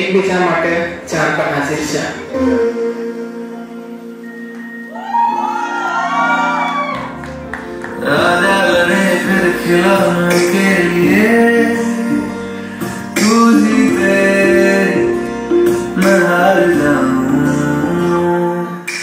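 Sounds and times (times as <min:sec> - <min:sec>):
person singing: 0:02.2 - 0:04.7, 0:07.9 - 0:19.0
acoustic guitar strumming: 0:07.4 - 0:19.0.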